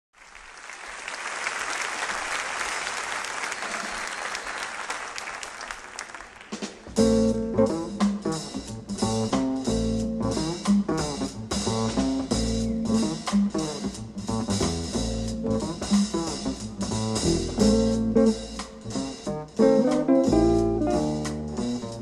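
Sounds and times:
audience applause: 0:00.1 - 0:07.0
deep bass notes: 0:07.0 - 0:22.0
plucked jazz guitar: 0:07.0 - 0:22.0.

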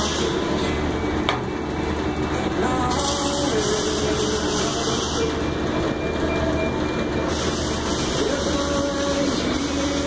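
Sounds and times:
low shop hum: 0:00.0 - 0:10.0
welding arc hissing and crackling: 0:02.9 - 0:05.3, 0:07.3 - 0:10.0.

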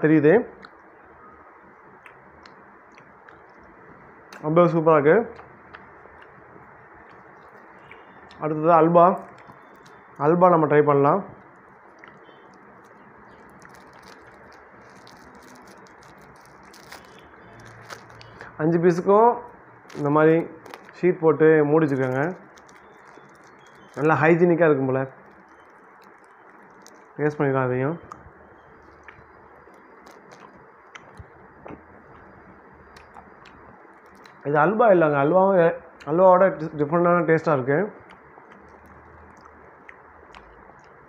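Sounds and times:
low steady hiss: 0:00.0 - 0:41.0
sweet wrapper crinkling: 0:07.0 - 0:10.3, 0:11.4 - 0:21.2, 0:21.8 - 0:27.4, 0:28.1 - 0:34.5.

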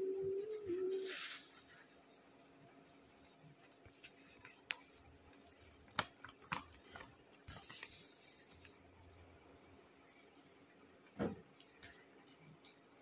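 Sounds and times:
paper rustling: 0:00.9 - 0:08.8
paper clicks and crinkles: 0:01.0 - 0:08.8
booklet pages turning: 0:03.2 - 0:08.8.

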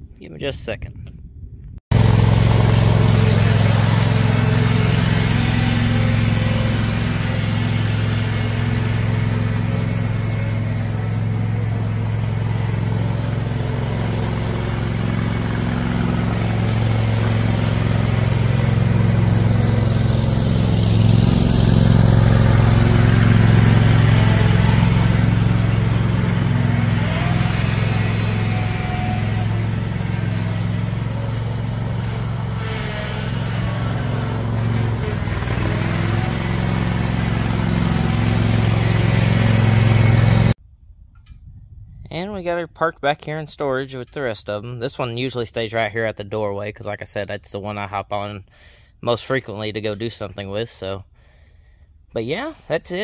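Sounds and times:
garden tractor engine running: 0:01.9 - 0:40.6.

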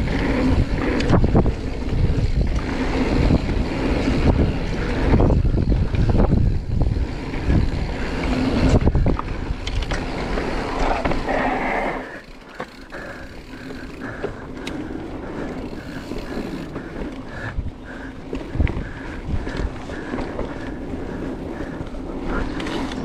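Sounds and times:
wind on microphone: 0:00.0 - 0:12.3.

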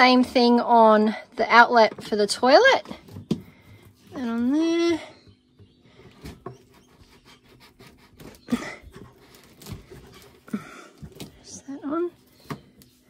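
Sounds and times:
plastic hose rustling and scraping: 0:05.6 - 0:13.0.

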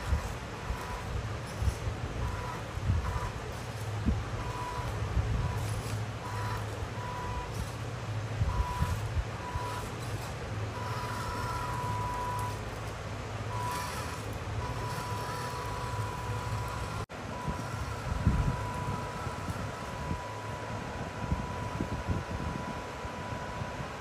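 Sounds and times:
steady low hum: 0:00.0 - 0:24.0
electronic reverse-warning beeper: 0:04.4 - 0:07.8, 0:08.4 - 0:12.6, 0:13.5 - 0:23.6.

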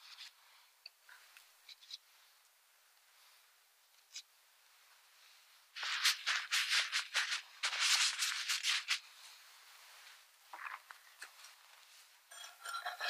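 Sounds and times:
paper towel rustling: 0:05.8 - 0:10.3.

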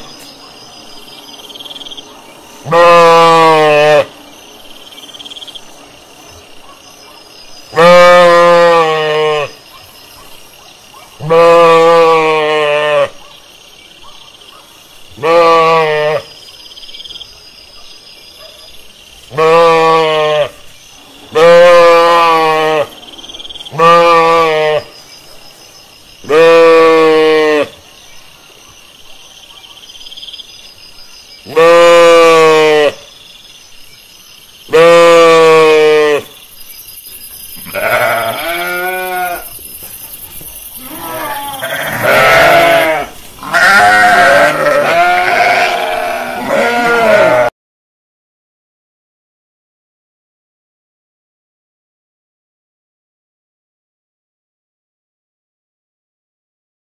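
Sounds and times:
sheep bleating: 0:02.6 - 0:04.1, 0:07.7 - 0:09.6, 0:11.2 - 0:13.1, 0:15.2 - 0:16.3, 0:19.3 - 0:20.6, 0:21.3 - 0:22.9, 0:23.7 - 0:24.9, 0:26.3 - 0:27.7, 0:31.5 - 0:33.0, 0:34.7 - 0:36.3, 0:37.6 - 0:39.5, 0:40.8 - 0:47.5.

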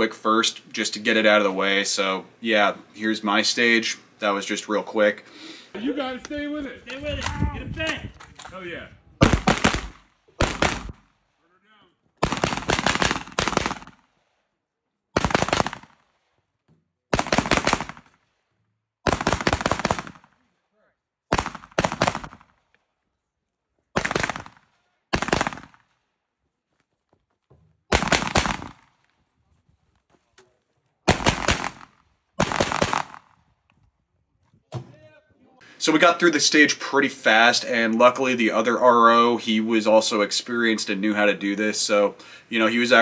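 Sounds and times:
rapid rifle shots: 0:09.2 - 0:11.2, 0:12.2 - 0:14.1, 0:15.2 - 0:16.2, 0:17.1 - 0:18.2, 0:19.0 - 0:20.4, 0:21.3 - 0:22.6, 0:24.0 - 0:25.9, 0:27.9 - 0:29.0, 0:31.1 - 0:33.4.

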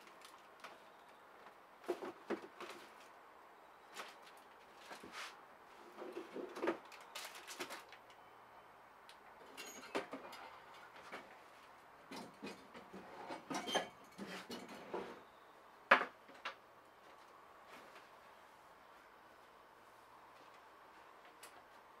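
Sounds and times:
knocks and clatters of objects: 0:01.8 - 0:03.1, 0:05.9 - 0:08.0, 0:12.0 - 0:15.2.

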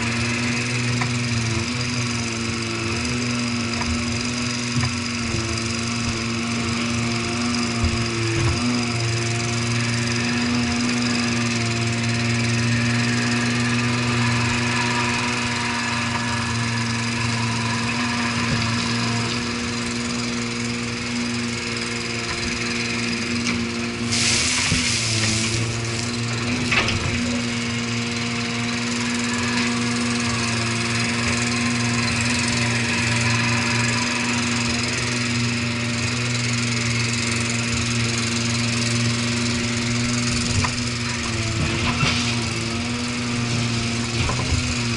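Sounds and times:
diesel digger engine running: 0:00.0 - 0:44.9
hydraulic hiss: 0:23.4 - 0:27.8.

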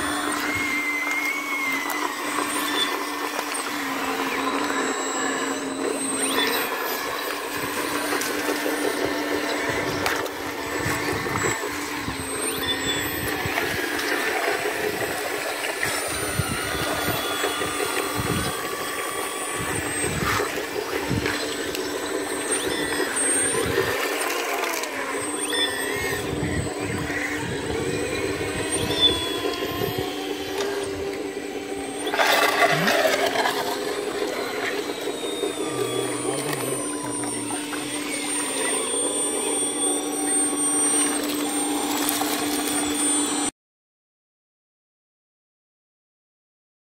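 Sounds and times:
hydraulic pump hum and whine: 0:00.0 - 0:43.5
bucket splashing and scraping: 0:32.1 - 0:34.3.

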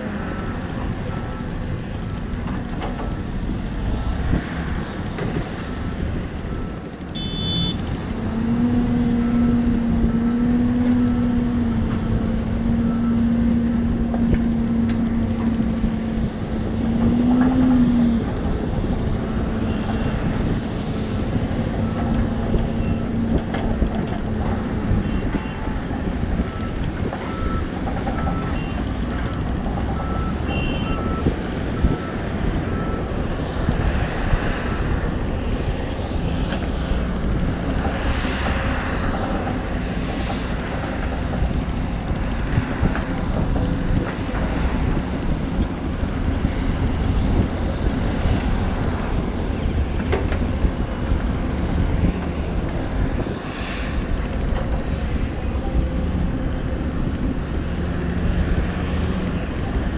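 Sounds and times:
diesel engines running: 0:00.0 - 0:59.9
faint reversing beeper: 0:05.8 - 0:07.8.

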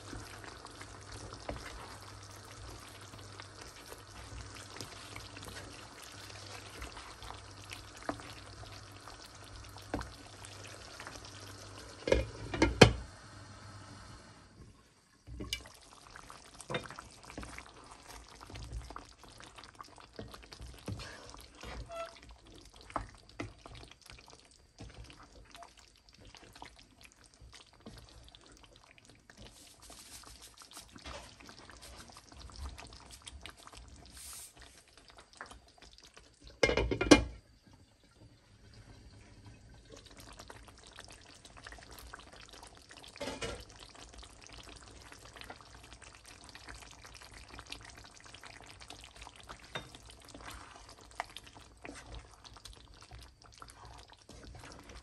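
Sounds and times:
wooden spoon stirring curry: 0:00.0 - 0:11.1, 0:15.6 - 0:33.9, 0:43.9 - 0:55.0
glass lid clattering on pan: 0:12.0 - 0:13.0, 0:36.6 - 0:37.3.

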